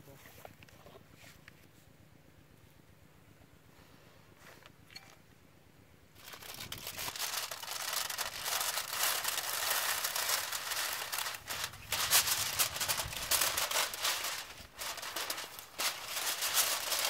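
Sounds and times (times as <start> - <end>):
aluminium foil crinkling: 6.2 - 17.0.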